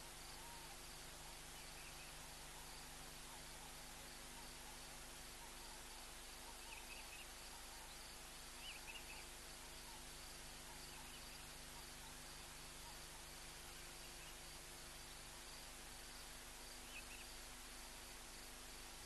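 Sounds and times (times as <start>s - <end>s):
steady hiss: 0.0s - 19.0s.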